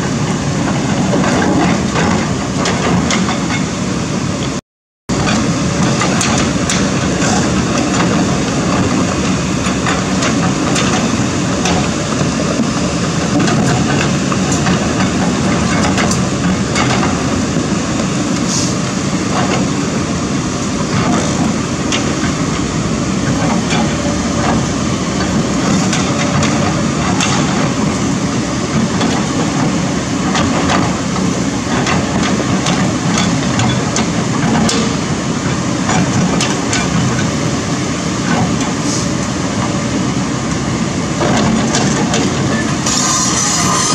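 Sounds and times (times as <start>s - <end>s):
excavator diesel engine running: 0.0s - 43.9s.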